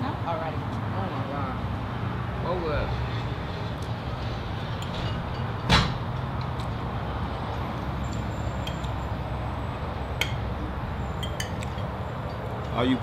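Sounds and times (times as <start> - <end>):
low traffic rumble: 0.0 - 13.0.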